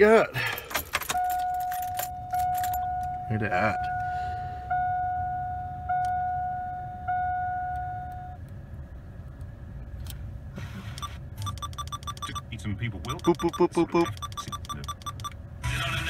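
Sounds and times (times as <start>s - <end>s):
electronic warning chime dings: 11.0s - 12.5s, 13.1s - 15.3s.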